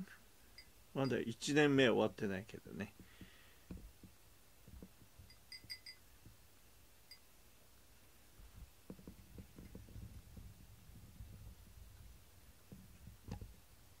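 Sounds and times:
tiny high-pitched rings: 0.5s - 1.3s, 5.2s - 6.1s, 7.1s - 7.3s.

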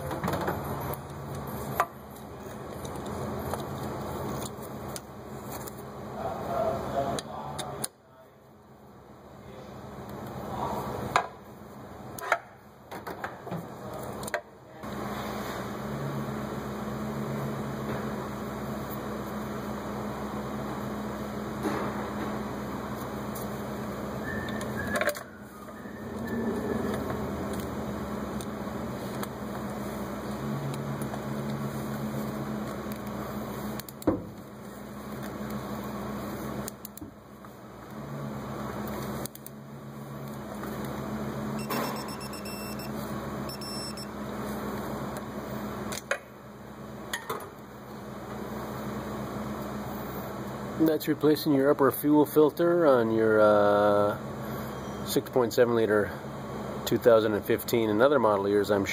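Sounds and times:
machine hum: 14.8s - 50.9s.

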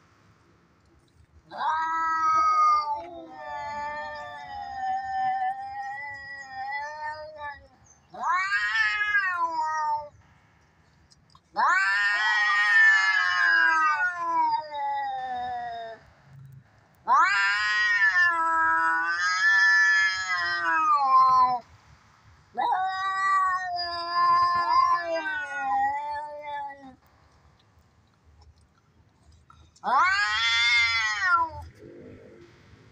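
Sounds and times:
cats yowling in a fight: 1.5s - 10.2s, 11.5s - 16.1s, 17.0s - 21.6s, 22.5s - 27.0s, 29.8s - 32.1s.

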